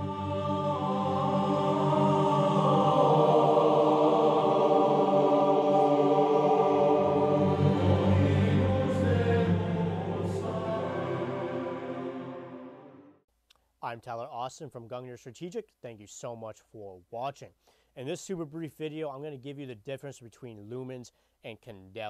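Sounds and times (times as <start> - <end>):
low drone: 0.0 - 13.2
music of long held notes: 0.0 - 13.2.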